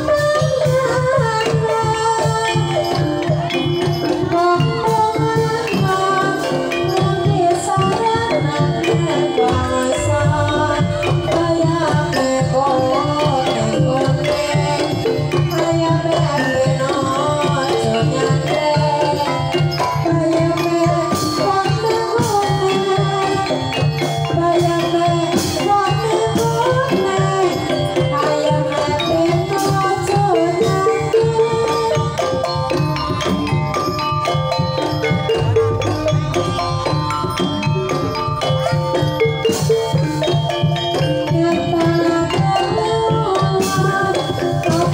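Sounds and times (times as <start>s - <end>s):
hand drums: 0.0s - 44.9s
woman singing: 0.0s - 44.9s
wooden xylophone: 0.0s - 44.9s
gongs: 8.2s - 16.3s, 31.4s - 42.8s.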